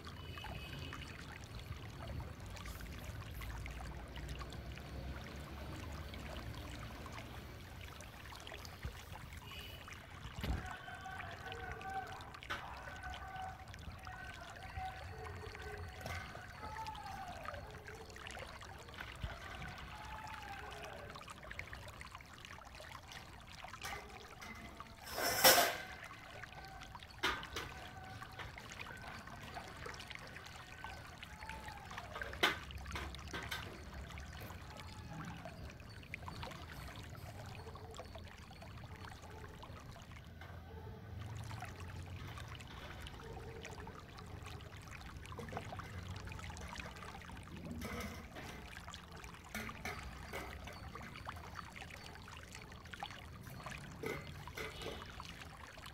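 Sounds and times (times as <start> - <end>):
water poured between pots: 0.0 - 55.9
water sloshing and trickling: 0.0 - 55.9
steel utensils clinking: 24.0 - 26.0
metallic clank: 25.1 - 25.9.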